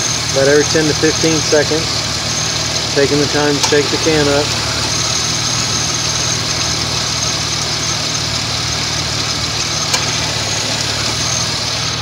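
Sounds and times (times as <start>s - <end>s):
engine idling with fan noise: 0.0s - 12.0s.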